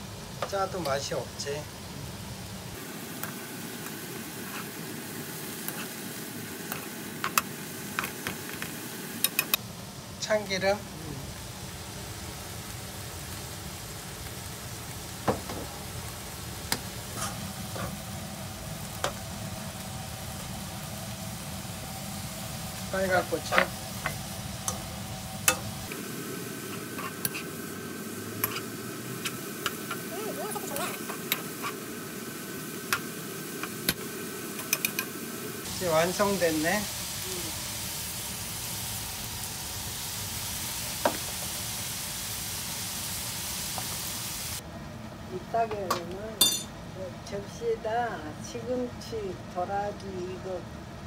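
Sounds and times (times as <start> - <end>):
greens sizzling in a wok: 0.0 - 50.8
metal spoon clinking on pan: 45.9 - 46.7.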